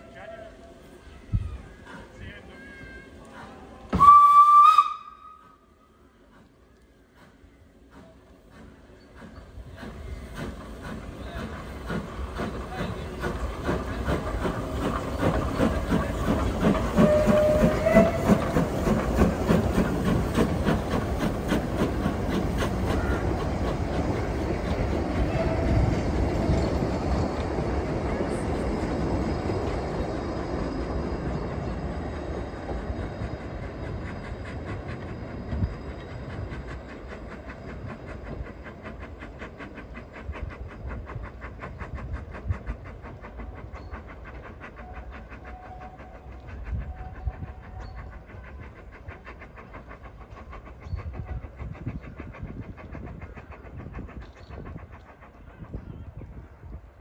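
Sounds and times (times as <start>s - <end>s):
steam locomotive pulling away: 0.0s - 57.0s.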